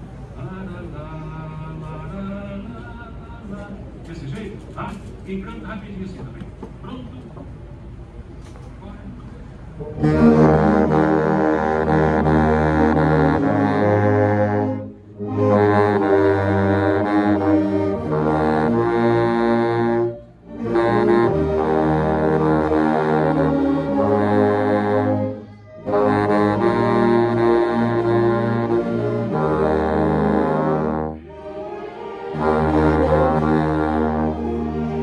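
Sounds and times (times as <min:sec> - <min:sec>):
saxophones and brass ensemble: 0:09.8 - 0:35.0
baritone saxophone playing a hymn: 0:09.9 - 0:35.0.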